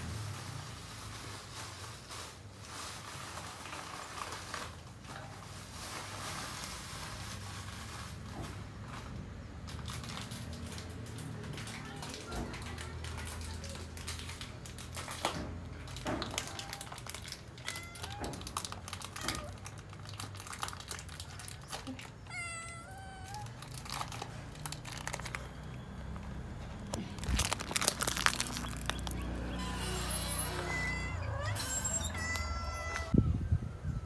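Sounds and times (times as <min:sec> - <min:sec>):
faint crackling and rustling: 0:00.2 - 0:30.1
loud crackles and knocks: 0:09.8 - 0:22.0, 0:23.6 - 0:30.6
cat meowing: 0:17.6 - 0:19.6, 0:22.1 - 0:24.1.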